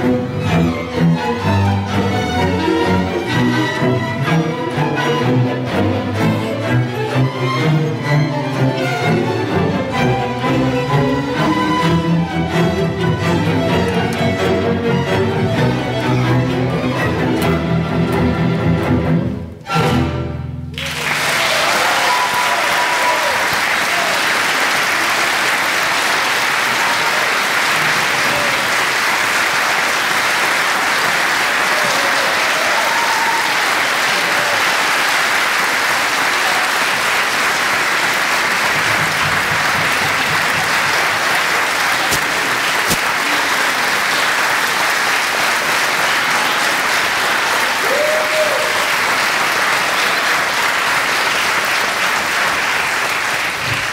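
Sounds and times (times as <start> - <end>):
audience applause: 20.7 - 53.9.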